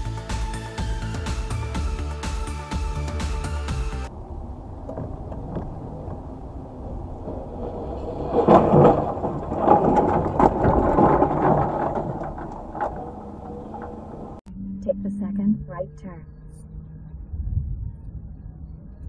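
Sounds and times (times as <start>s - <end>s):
road and engine rumble: 0.0s - 19.0s
knocks and rattles: 4.8s - 14.4s.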